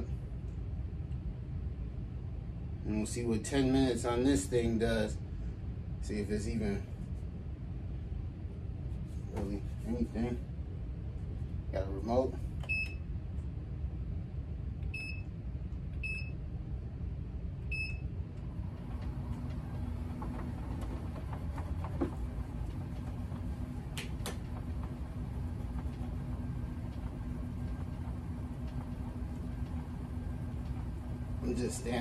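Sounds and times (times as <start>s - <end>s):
low rumble: 12.7s - 32.0s
motor humming: 18.3s - 32.0s
vibration plate beeping: 18.7s - 31.8s.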